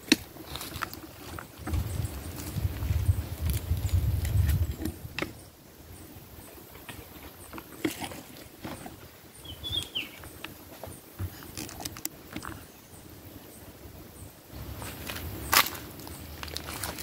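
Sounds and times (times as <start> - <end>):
grass rustling and clicks: 0.0 - 5.5, 6.4 - 12.8, 14.5 - 17.0
wind rumbling on microphone: 0.0 - 10.6
high bird chirp: 9.4 - 10.4.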